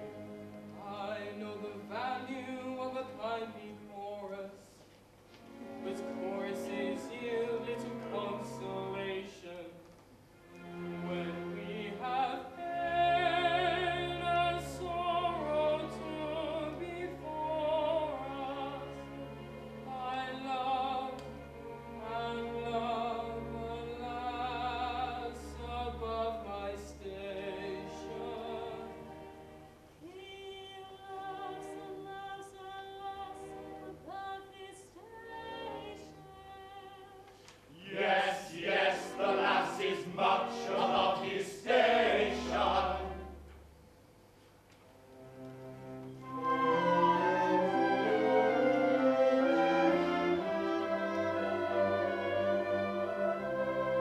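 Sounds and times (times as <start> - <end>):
orchestra playing: 5.4 - 9.6, 10.3 - 29.9, 37.8 - 43.8, 44.9 - 54.0
tenor singing: 5.5 - 9.9, 10.6 - 43.5, 45.8 - 54.0
group of voices singing: 37.8 - 43.3.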